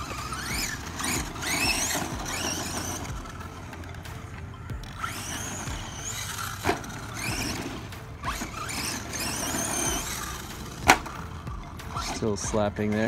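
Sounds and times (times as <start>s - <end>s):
chassis slapping the ground: 0.0s - 13.0s
electric motor whining: 0.0s - 13.0s
tyre noise on dirt: 0.0s - 13.0s.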